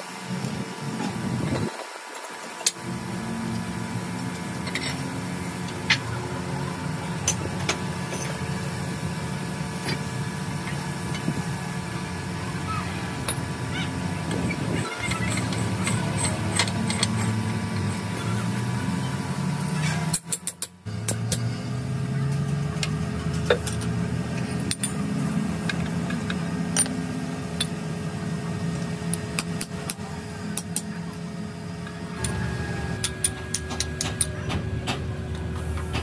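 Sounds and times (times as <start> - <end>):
motor droning: 20.8 - 36.0.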